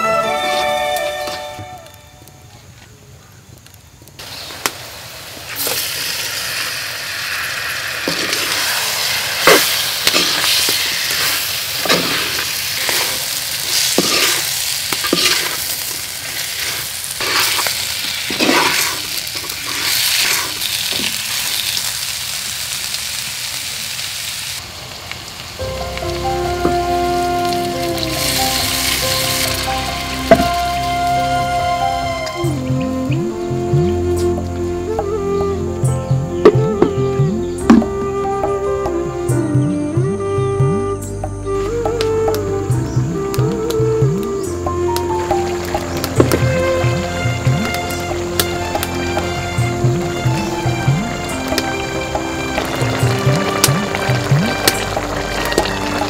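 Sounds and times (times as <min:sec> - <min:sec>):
music: 0:00.0 - 0:02.5, 0:14.0 - 0:14.4, 0:25.6 - 0:56.0
prawns sizzling in a pot: 0:04.2 - 0:34.4, 0:42.9 - 0:56.0
wooden spoon scraping a pot: 0:13.8 - 0:15.6, 0:18.3 - 0:20.6.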